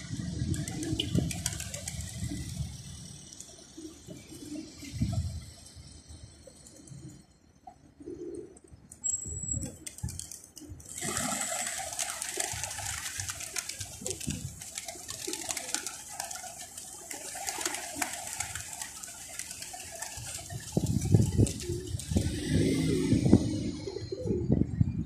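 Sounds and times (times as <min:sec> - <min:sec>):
pigeons cooing: 0:07.8 - 0:08.7, 0:09.6 - 0:24.8.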